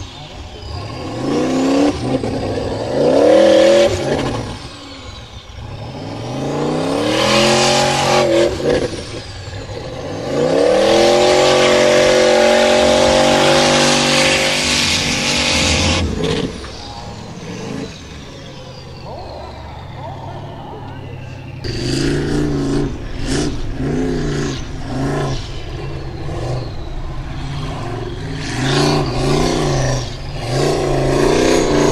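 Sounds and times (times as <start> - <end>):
spinning wheels throwing dirt: 0.0 - 19.1
car engine revving hard: 0.0 - 19.2, 19.8 - 31.9.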